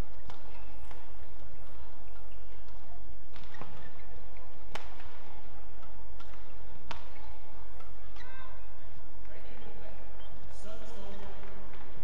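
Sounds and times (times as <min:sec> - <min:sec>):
racket hitting shuttlecock: 0:00.1 - 0:01.6, 0:02.2 - 0:08.3.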